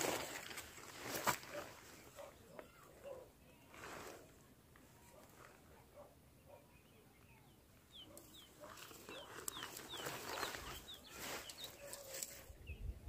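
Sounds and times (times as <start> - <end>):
tent fabric rustling: 0.0 - 2.1, 8.6 - 12.4
bird chirping: 6.0 - 13.0.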